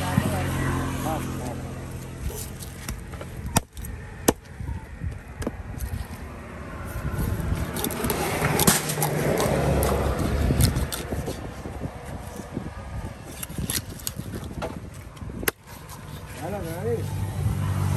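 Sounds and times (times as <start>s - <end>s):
motor vehicle running: 0.0s - 17.9s
cleaver chopping fish on wood: 2.9s - 4.5s
knife slicing fish: 6.9s - 12.5s.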